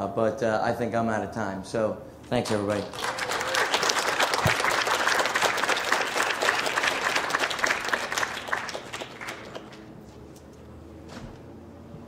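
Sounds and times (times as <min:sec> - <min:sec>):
audience applauding: 0:02.4 - 0:10.0.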